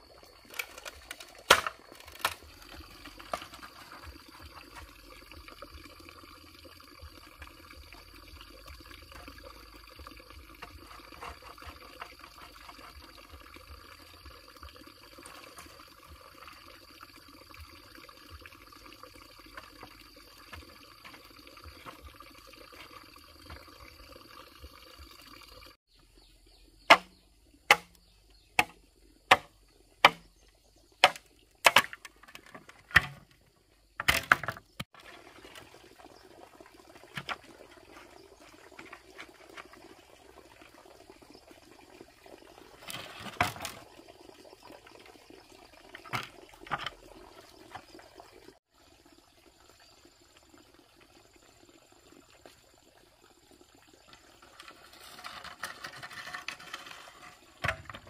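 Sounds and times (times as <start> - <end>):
insects chirring: 0.0 - 34.8
hand tool knocking bamboo pole: 26.9 - 27.1, 27.7 - 28.0, 28.6 - 30.3, 31.0 - 33.2.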